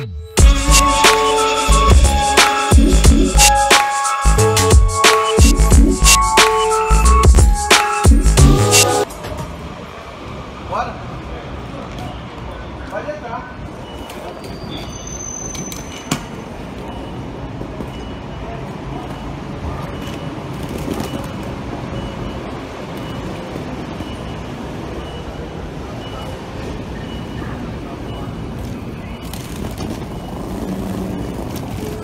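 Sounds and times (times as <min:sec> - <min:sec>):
traffic noise: 0:00.6 - 0:32.0
faint high beeps: 0:16.8 - 0:20.4, 0:21.0 - 0:31.3.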